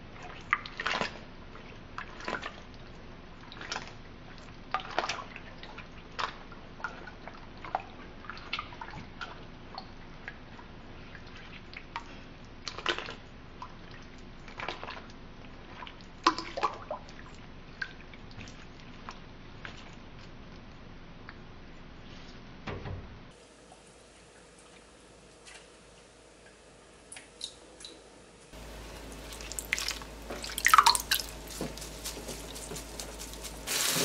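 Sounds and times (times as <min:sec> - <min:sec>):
water dripping into glass bowl: 0:29.3 - 0:31.4.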